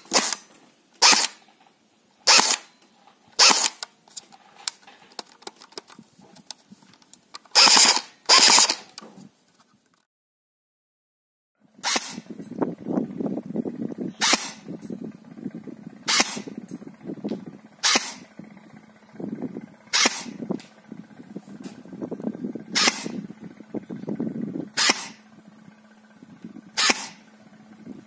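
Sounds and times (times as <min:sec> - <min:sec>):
airsoft gun shots: 0:00.0 - 0:01.4, 0:02.3 - 0:02.7, 0:03.4 - 0:03.8, 0:07.5 - 0:08.9, 0:11.8 - 0:12.3, 0:14.2 - 0:14.7, 0:16.1 - 0:16.5, 0:17.8 - 0:18.2, 0:19.9 - 0:20.4, 0:22.7 - 0:23.2, 0:24.8 - 0:25.2, 0:26.8 - 0:27.2.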